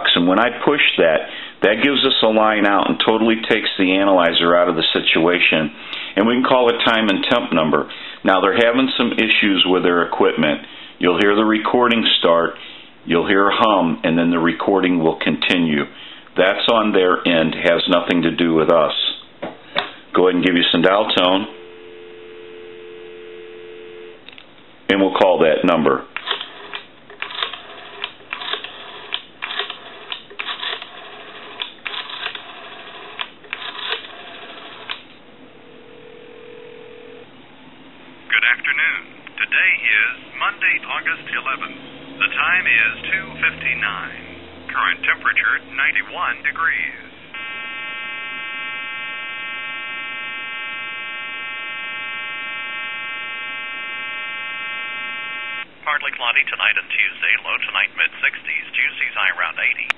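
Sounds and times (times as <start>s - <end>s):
telephone ringback tone: 21.3s - 24.2s, 35.8s - 37.2s, 47.4s - 55.6s.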